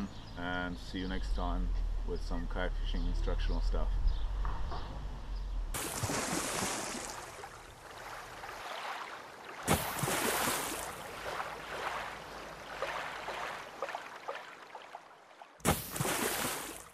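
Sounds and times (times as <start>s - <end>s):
water rushing and splashing: 5.8s - 16.9s.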